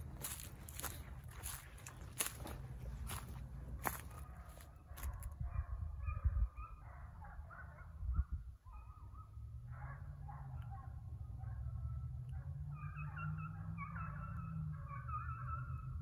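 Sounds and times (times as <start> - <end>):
distant animal calls: 11.6 - 16.0.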